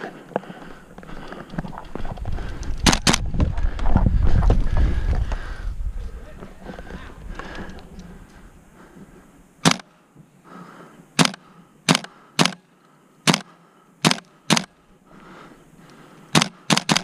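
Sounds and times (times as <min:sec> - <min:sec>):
airsoft gun shots: 0:09.6 - 0:09.9, 0:11.2 - 0:12.6, 0:13.2 - 0:14.7, 0:16.3 - 0:17.0.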